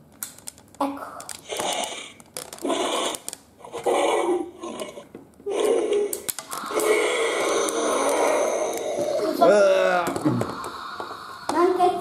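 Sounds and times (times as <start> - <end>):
growling dinosaur roars: 2.6 - 11.5.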